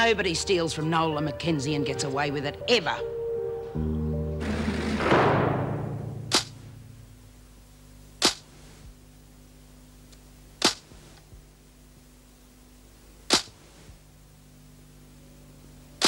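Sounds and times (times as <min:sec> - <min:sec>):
faint steady hum: 0:00.0 - 0:16.0
sharp short clacks: 0:06.3 - 0:06.6.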